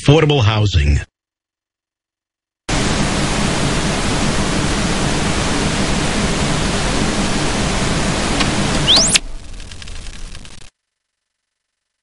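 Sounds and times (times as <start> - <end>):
static-like hiss: 2.7 - 10.8.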